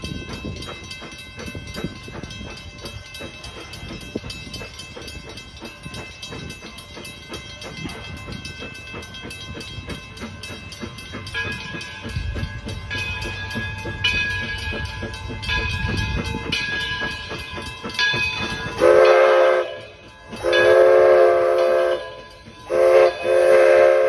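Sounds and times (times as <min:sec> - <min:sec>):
steam locomotive chugging: 0:00.0 - 0:24.0
steam whistle: 0:18.8 - 0:24.0.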